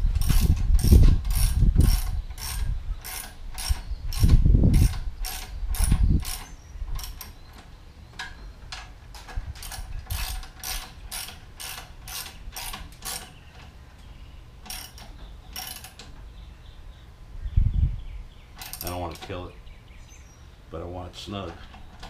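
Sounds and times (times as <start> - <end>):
ratchet wrench clicking: 0.2 - 7.3, 14.7 - 16.0.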